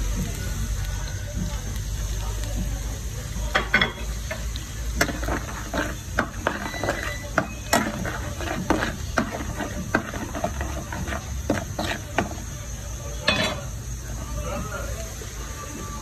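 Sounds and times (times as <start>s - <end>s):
oil frying: 0.0s - 16.0s
spoon clinking and scraping pan: 3.6s - 12.6s, 13.2s - 13.8s.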